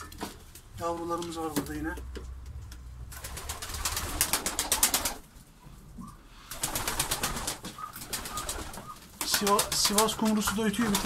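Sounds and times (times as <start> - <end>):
pigeon wings flapping: 3.1 - 5.3, 6.5 - 11.0
pigeons cooing: 3.2 - 11.0.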